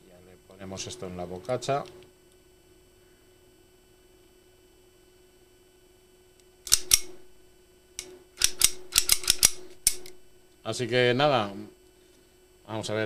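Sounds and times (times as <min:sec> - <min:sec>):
faint steady hum: 0:00.0 - 0:13.0
pistol slide metal clicks: 0:06.6 - 0:07.3, 0:08.4 - 0:10.2.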